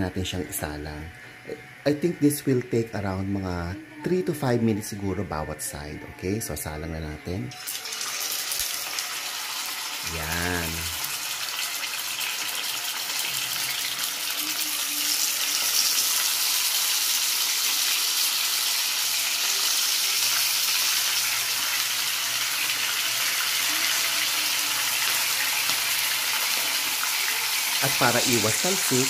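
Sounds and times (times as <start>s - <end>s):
fish sizzling in hot oil: 7.5s - 29.0s.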